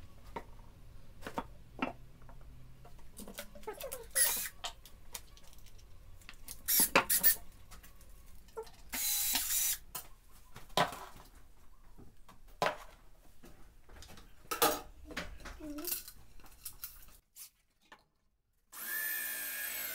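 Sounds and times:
wooden parts knocking and scraping: 1.2s - 4.0s
cordless drill driving screw: 4.2s - 4.6s, 6.7s - 7.4s, 9.0s - 9.8s, 18.8s - 19.9s.

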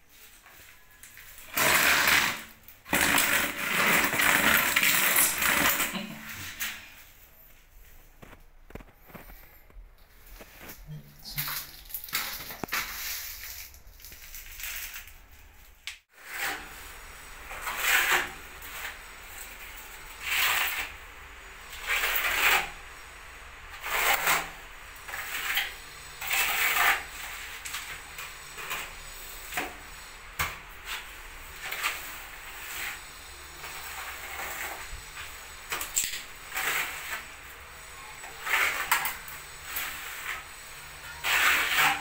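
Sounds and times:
trowel scraping mortar: 1.3s - 6.9s, 16.2s - 21.0s, 21.6s - 23.1s, 23.7s - 42.0s.

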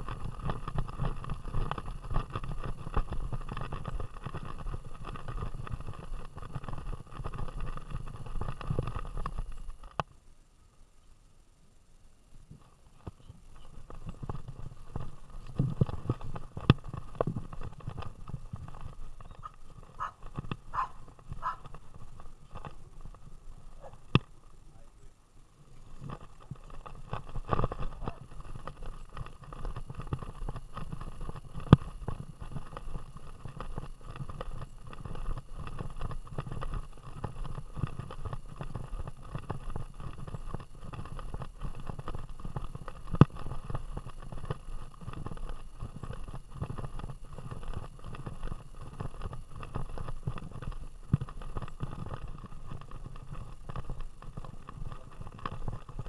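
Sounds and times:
camera handling rumble and rattle: 0.0s - 10.0s, 13.0s - 24.4s, 25.6s - 56.0s.

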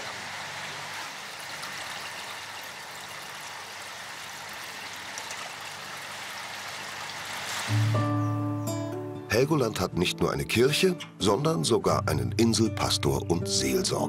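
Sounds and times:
water splashing into tank: 0.0s - 8.0s.

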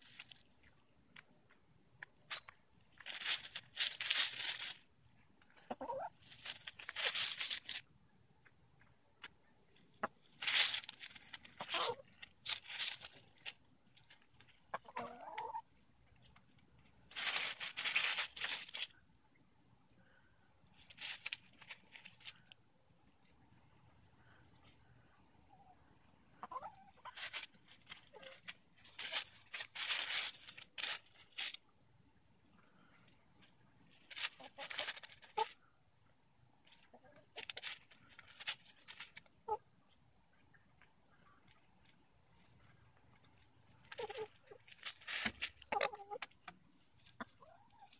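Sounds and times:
rustling in dry leaves: 3.0s - 4.8s, 5.6s - 7.8s, 10.2s - 14.4s, 17.1s - 18.9s, 20.8s - 22.5s, 27.0s - 31.6s, 33.9s - 35.6s, 43.8s - 46.1s
hen clucking: 5.5s - 6.2s, 11.5s - 12.2s, 14.6s - 15.6s, 25.5s - 27.4s, 34.3s - 35.6s, 39.3s - 39.7s, 43.9s - 47.9s.

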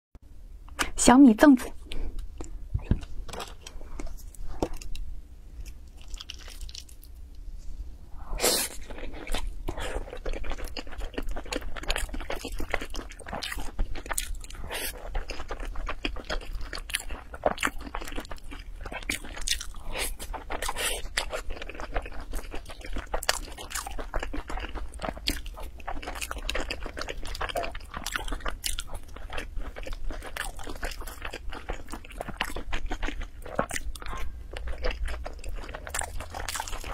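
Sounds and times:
close chewing: 8.7s - 36.9s.

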